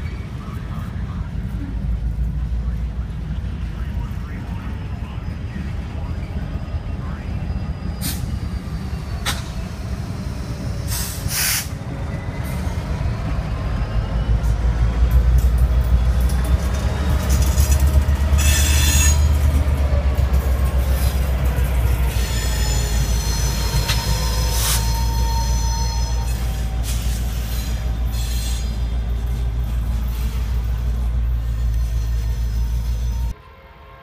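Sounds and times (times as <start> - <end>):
freight cars rolling on track: 0.0 - 33.4
diesel locomotive drone: 0.0 - 34.0
air hisses: 10.9 - 11.8
wheels squealing: 16.2 - 33.3.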